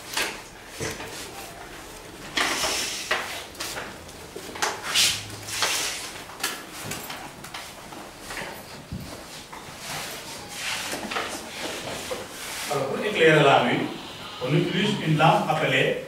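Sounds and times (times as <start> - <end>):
chalk scraping on blackboard: 10.5 - 12.9.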